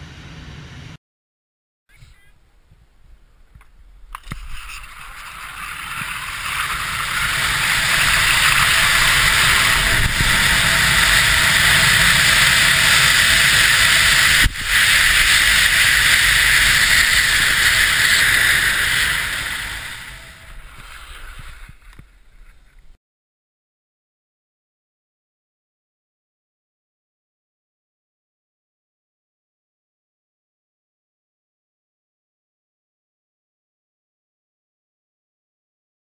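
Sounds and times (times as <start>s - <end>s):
rushing wind noise: 4.1s - 22.6s.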